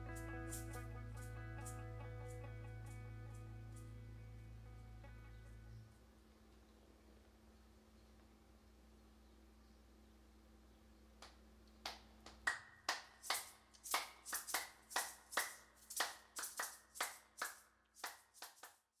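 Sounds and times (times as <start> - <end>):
slow hand claps: 11.2 - 18.8.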